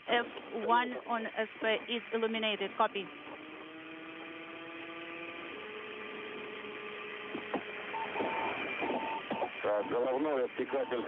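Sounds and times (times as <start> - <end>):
electrical hum on radio channel: 0.0 - 3.4, 5.5 - 11.0
short high beeps: 7.9 - 11.0.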